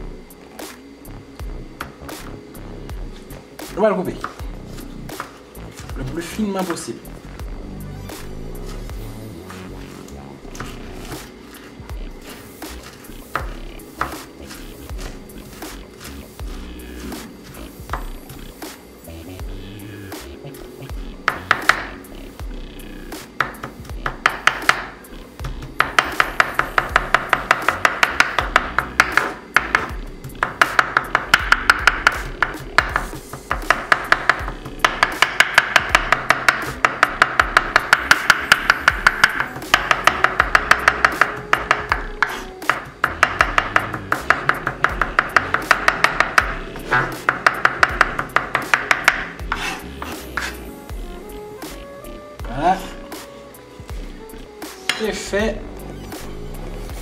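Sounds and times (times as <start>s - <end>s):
background music: 0.0s - 57.0s
knife chopping on wooden board: 9.4s - 18.2s, 21.3s - 22.0s, 23.4s - 50.6s.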